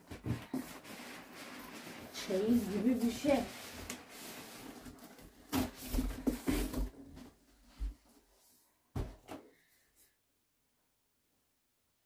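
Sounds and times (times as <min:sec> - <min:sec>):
cardboard scraping and rustling: 0:00.0 - 0:07.3.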